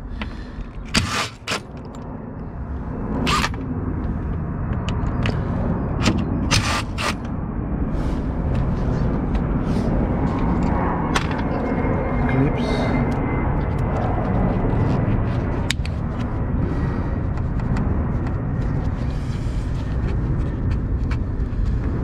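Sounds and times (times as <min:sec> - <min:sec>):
cordless drill motor running: 0:01.0 - 0:01.6, 0:03.3 - 0:03.6, 0:06.5 - 0:07.3.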